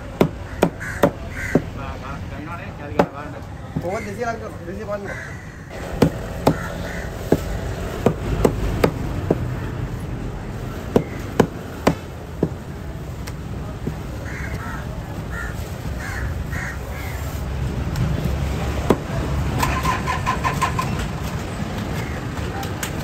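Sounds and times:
crows cawing: 0.4 - 1.8, 3.9 - 5.8, 6.4 - 7.7, 14.2 - 17.3
cleaver chopping on wooden board: 6.0 - 6.7, 7.3 - 9.5, 10.9 - 12.6, 18.8 - 19.1.

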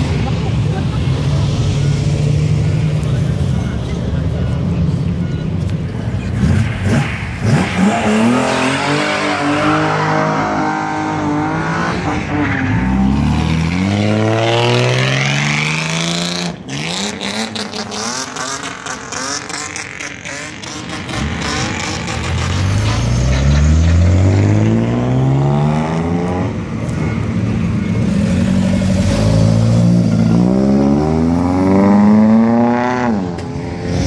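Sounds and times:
car engines revving: 0.0 - 34.0.

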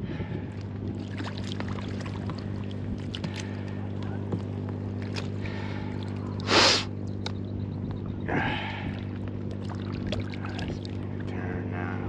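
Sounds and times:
small boat motor humming: 0.0 - 12.0.

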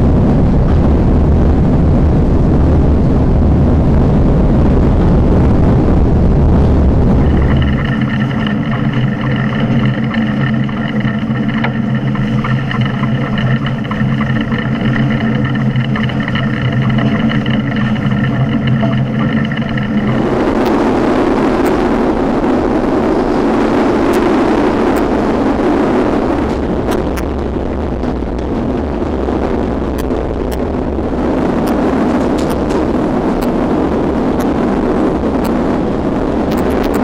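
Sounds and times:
rushing noise of running train: 0.0 - 37.0.

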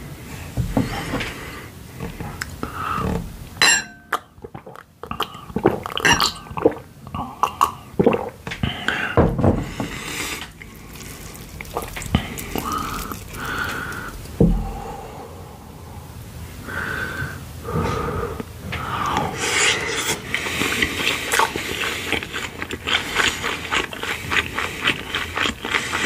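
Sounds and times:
glass clinking: 3.6 - 4.2, 6.0 - 6.4
wet mouth sounds: 4.1 - 9.0, 9.9 - 14.8, 19.0 - 26.0
person gulping water: 4.1 - 15.0, 19.0 - 26.0.

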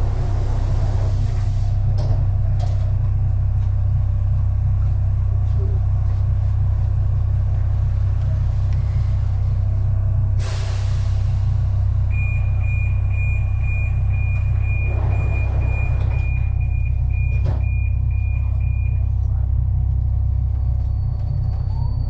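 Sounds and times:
metro train hum: 0.0 - 22.0
hiss of air: 10.4 - 11.4.

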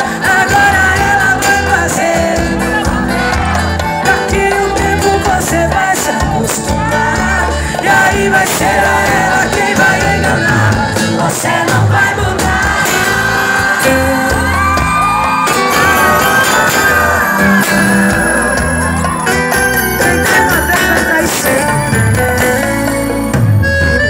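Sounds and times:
woman singing into a microphone: 0.0 - 14.9
live band playing: 0.0 - 24.0
fans shouting and whooping: 0.2 - 9.3, 12.0 - 21.2.

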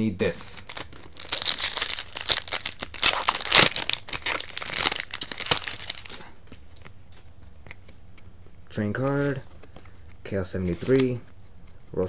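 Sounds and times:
foil wrapper crinkling and tearing: 0.5 - 6.3.

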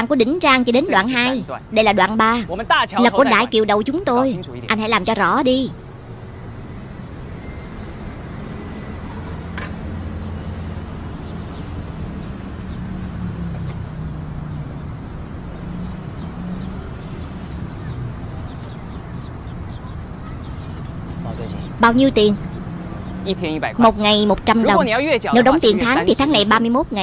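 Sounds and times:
street traffic rumble: 0.0 - 27.0.

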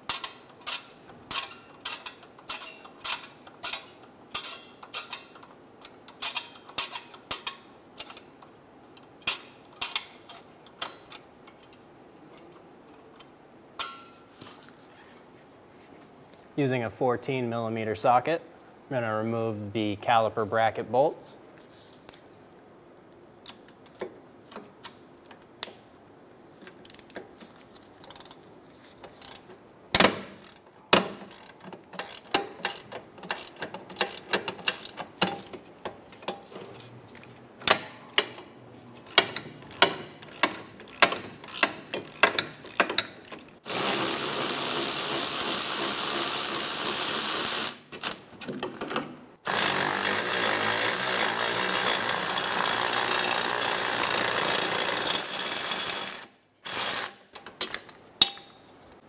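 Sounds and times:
hand ratchet clicking: 0.1 - 8.3, 29.0 - 35.6, 39.0 - 48.2, 49.4 - 58.5
pneumatic tool running: 43.6 - 48.1, 49.4 - 57.3.

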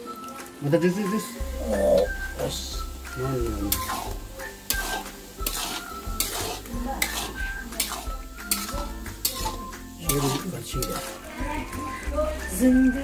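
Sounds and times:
metal spoon scraping metal pan: 3.5 - 11.4.

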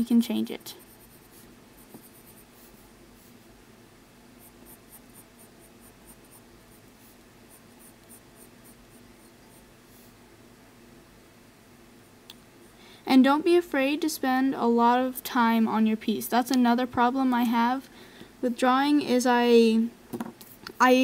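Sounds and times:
pencil scratching on paper: 0.4 - 3.4, 4.4 - 10.1.

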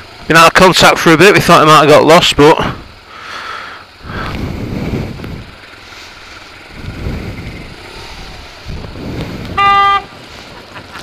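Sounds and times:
motorcycle engine running: 0.0 - 11.0
wind rumbling on microphone: 4.0 - 5.8, 6.6 - 10.5.

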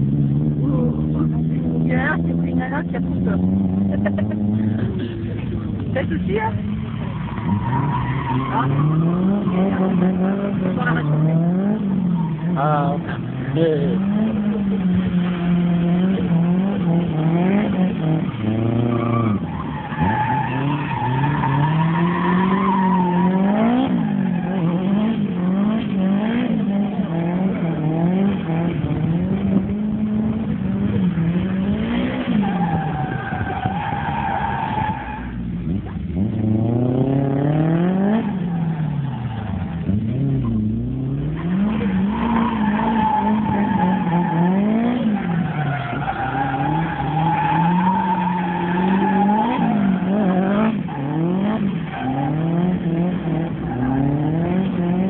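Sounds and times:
car engine revving: 0.0 - 55.0
tyres squealing: 41.3 - 52.4.

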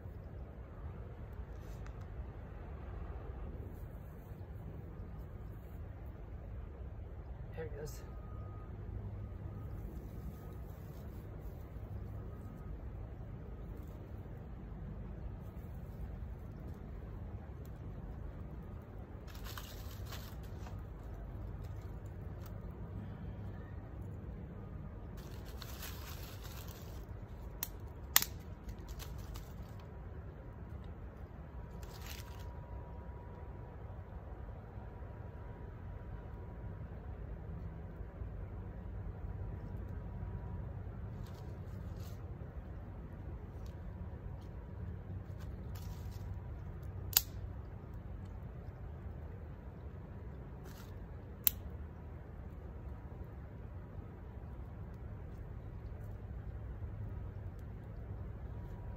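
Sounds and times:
dry grass rustling and crunching: 9.3 - 24.0, 25.0 - 32.8, 41.0 - 51.6
fire crackling: 15.1 - 24.1, 24.8 - 32.5, 41.1 - 58.9
sharp snaps: 27.5 - 29.5, 46.8 - 47.8, 50.7 - 51.8.

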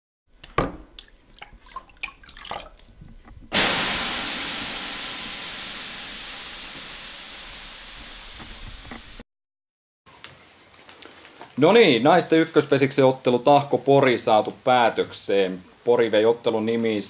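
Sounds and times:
water drips and splashes: 0.4 - 3.5
water hissing on hot stones: 3.5 - 9.2.

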